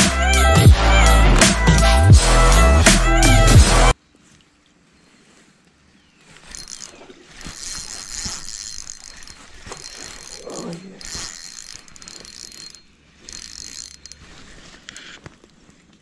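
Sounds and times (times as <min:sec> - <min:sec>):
fishing reel gears whirring: 0:06.4 - 0:15.2.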